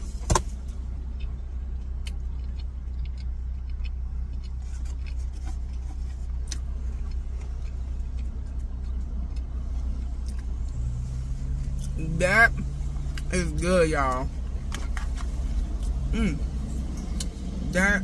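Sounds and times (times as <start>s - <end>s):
car engine idling: 0.0s - 18.0s
chewing clicks: 1.1s - 10.8s.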